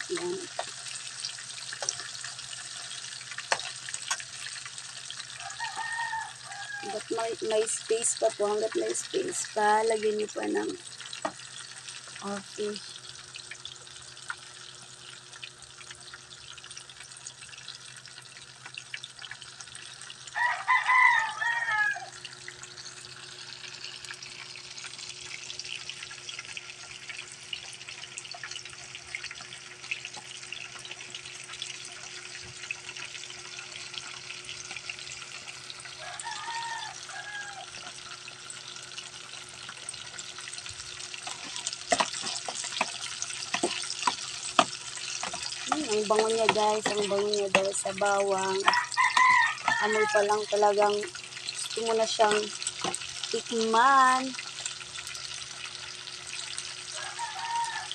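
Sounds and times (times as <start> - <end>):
fish sizzling in hot oil: 0.0 - 57.9
rooster crowing: 5.3 - 7.0, 20.3 - 22.2, 36.0 - 37.8, 48.4 - 50.5, 56.8 - 57.9.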